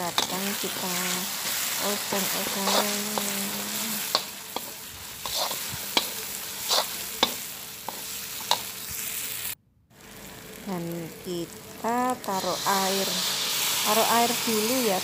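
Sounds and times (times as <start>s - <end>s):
food sizzling in oil: 0.0s - 15.0s
metal spatula scraping pan: 1.0s - 8.7s.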